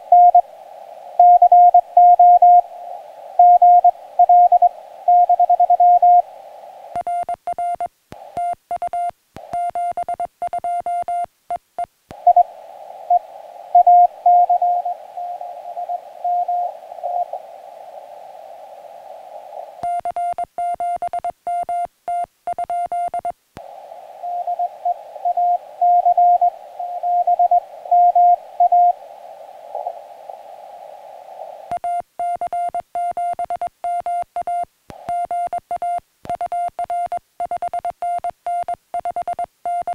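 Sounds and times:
receiver hiss: 0.0 - 39.9
morse code tones: 1.2 - 2.7, 3.4 - 6.3, 13.1 - 17.4, 24.2 - 29.0.

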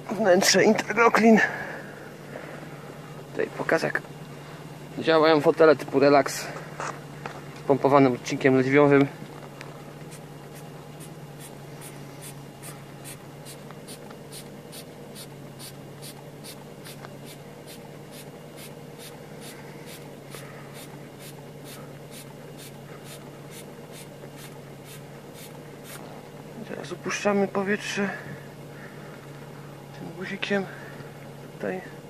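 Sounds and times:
steady low hum: 0.0 - 32.0
hand pump airy puffs: 10.1 - 26.2.

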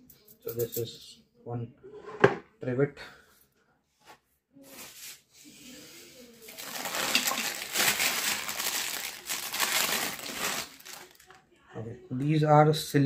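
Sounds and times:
plastic bag crinkling: 6.4 - 11.4.

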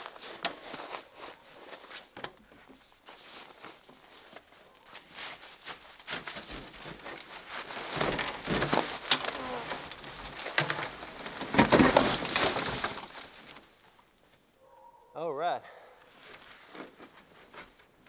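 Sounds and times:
snow crunching and scraping: 0.0 - 2.2, 2.8 - 13.8.

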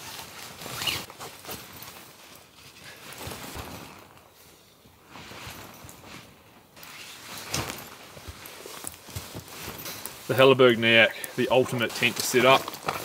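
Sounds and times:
nylon tent fabric rustling: 0.0 - 13.0
tent poles clicking and knocking: 6.8 - 13.0.

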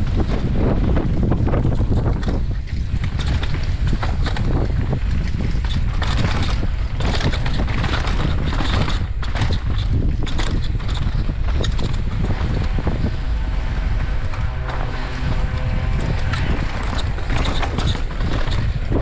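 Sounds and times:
bike tyres on dirt: 0.0 - 19.0
wind rumble on microphone: 0.0 - 19.0
bike clattering over rocks: 1.9 - 12.6.

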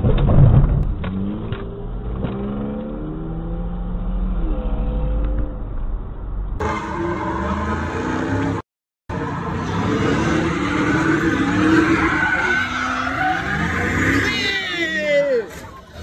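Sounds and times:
loud low thump: 0.0 - 1.2
car engine accelerating: 0.6 - 14.3.

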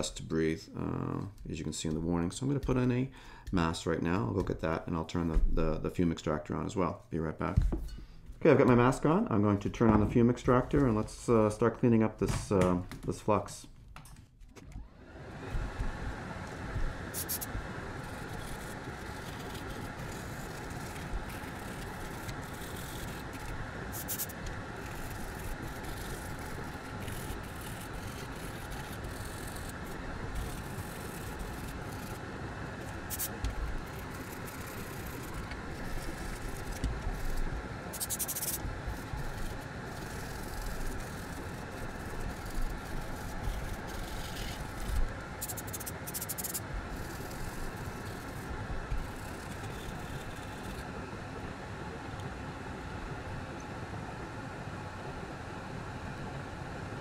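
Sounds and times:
extractor fan running: 14.5 - 57.0
brush scrubbing circuit board: 16.7 - 50.8.

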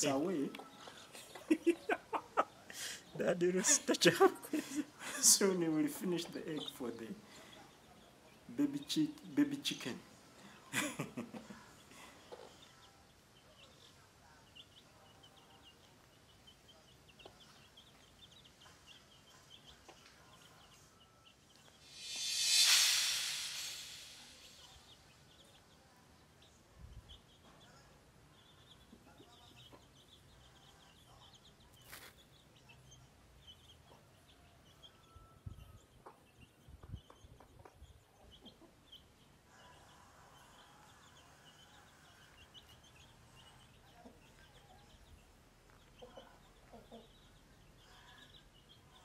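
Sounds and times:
chicks peeping: 0.0 - 22.3, 26.4 - 49.0
loud rushing noise: 21.8 - 24.8.

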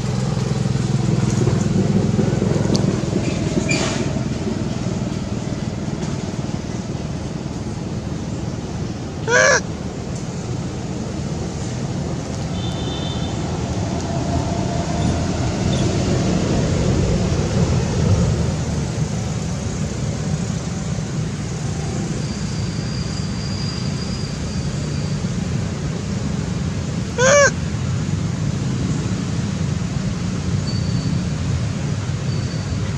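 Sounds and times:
monkey high wavering call: 9.2 - 9.7, 27.2 - 27.6.

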